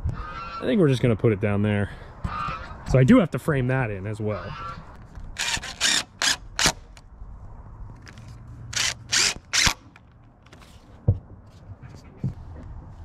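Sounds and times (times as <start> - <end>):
drill driving screws: 5.4 - 6.8, 8.7 - 9.8.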